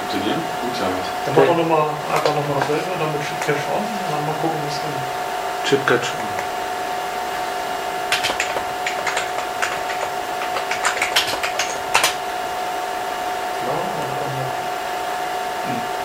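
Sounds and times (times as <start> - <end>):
steady hum: 0.0 - 16.0
computer keyboard typing: 8.1 - 12.3.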